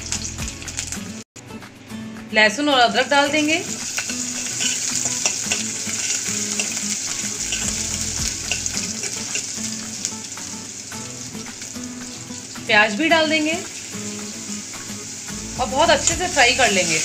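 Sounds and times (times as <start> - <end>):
garlic sizzling in hot oil: 0.0 - 1.2, 3.1 - 17.0
steel spoon stirring: 4.0 - 9.9.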